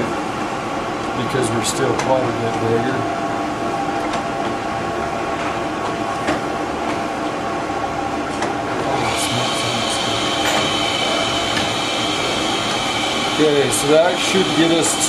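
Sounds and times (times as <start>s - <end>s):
lathe motor and gears whirring: 0.0s - 15.0s
high-pitched whine: 8.7s - 15.0s.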